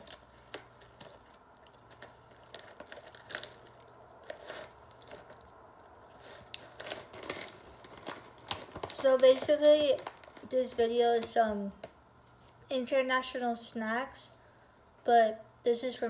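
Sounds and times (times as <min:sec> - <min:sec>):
quiet chewing: 0:00.0 - 0:08.7
plastic wrapper crinkling: 0:00.0 - 0:12.6.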